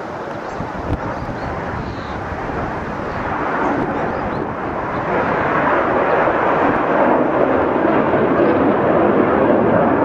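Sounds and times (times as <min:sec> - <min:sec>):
jet engines flying overhead: 0:00.0 - 0:10.0.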